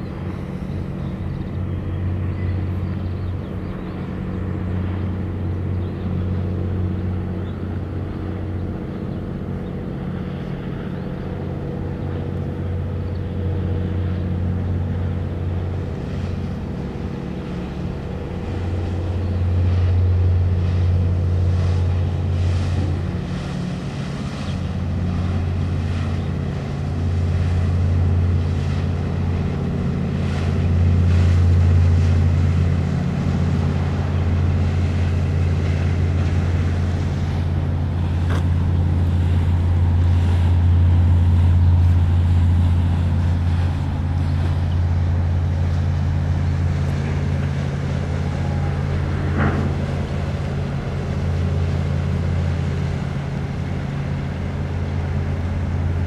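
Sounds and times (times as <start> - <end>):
boat engine droning: 0.0 - 56.0.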